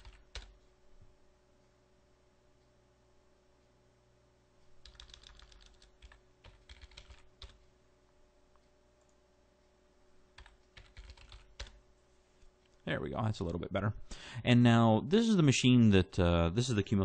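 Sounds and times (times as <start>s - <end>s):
faint typing on keyboard: 0.0s - 0.8s, 4.6s - 7.8s, 10.3s - 11.8s, 12.4s - 13.8s.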